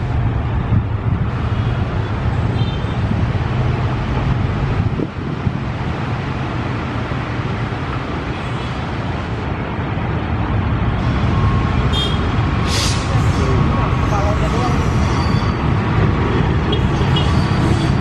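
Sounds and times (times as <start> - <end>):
locomotive engines rumbling: 0.0 - 18.0
brief hiss: 12.6 - 13.1.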